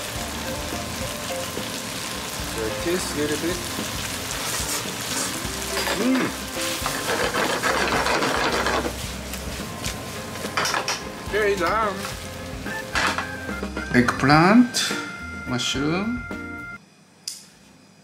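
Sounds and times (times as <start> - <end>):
food sizzling in a frying pan: 0.0 - 15.0
chopsticks scraping a pan: 4.4 - 9.1.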